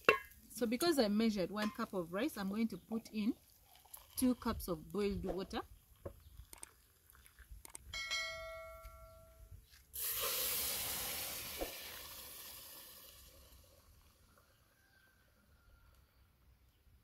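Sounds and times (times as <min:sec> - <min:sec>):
water poured into pot: 0:03.4 - 0:04.6, 0:10.0 - 0:14.1
short metallic ring: 0:08.0 - 0:09.4.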